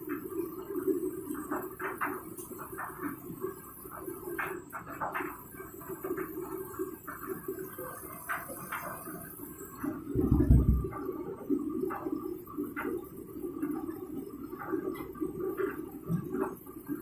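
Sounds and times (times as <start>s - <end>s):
washing machine drum turning: 7.4s - 17.0s
heavy thump: 10.2s - 10.9s.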